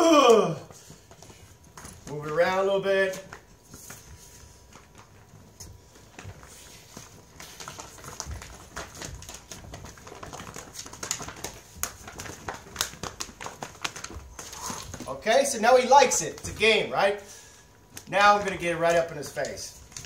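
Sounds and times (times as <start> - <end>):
person stepping about: 0.6 - 20.0
dog scrambling across floor: 3.3 - 15.1.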